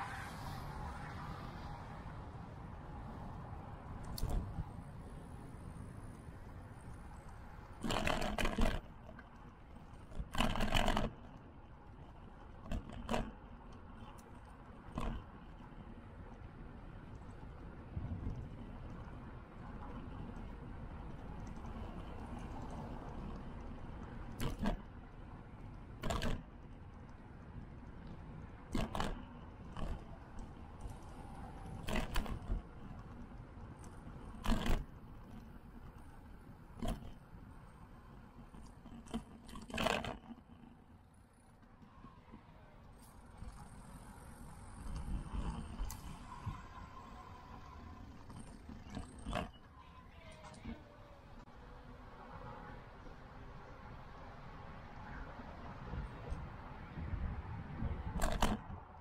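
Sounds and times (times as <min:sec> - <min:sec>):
bike tyre rumble: 0:02.9 - 0:49.6
wind on microphone: 0:55.5 - 0:59.0.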